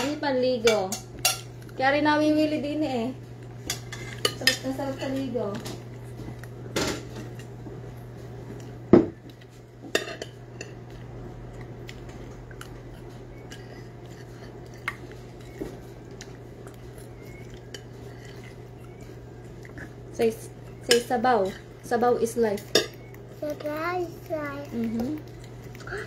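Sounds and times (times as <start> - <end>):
cutlery clinking on plates: 9.9 - 10.8.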